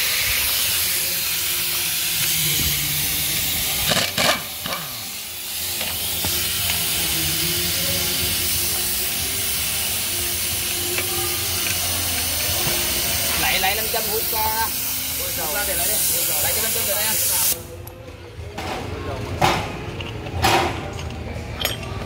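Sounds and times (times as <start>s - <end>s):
workshop hiss: 0.0s - 21.8s
clatter of metal tools: 20.9s - 22.0s.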